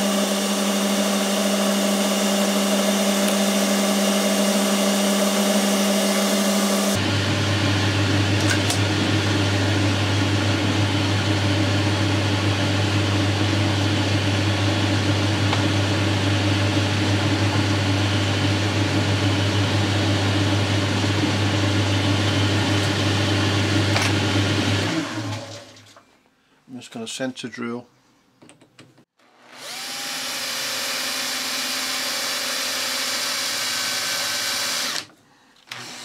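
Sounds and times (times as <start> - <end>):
lathe running with low hum: 0.0 - 25.0.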